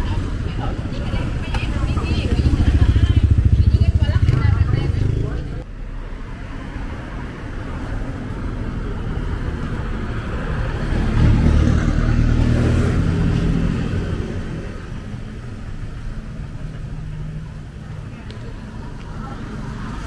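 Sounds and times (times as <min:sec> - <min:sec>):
motor vehicle passing: 0:00.0 - 0:15.1.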